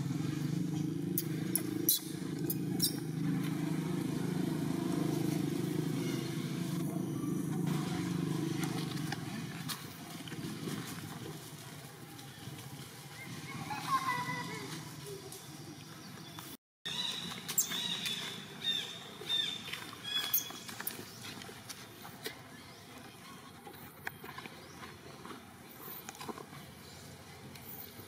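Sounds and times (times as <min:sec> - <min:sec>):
motor engine humming: 0:00.0 - 0:13.0.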